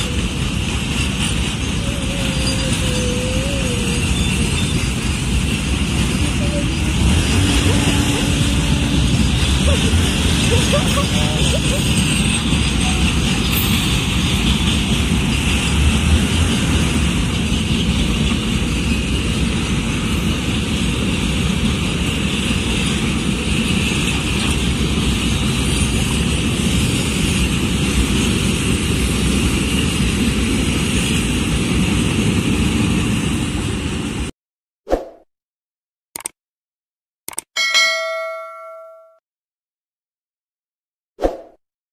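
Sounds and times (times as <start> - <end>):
freight train wheels rumbling on rails: 0.0 - 34.3.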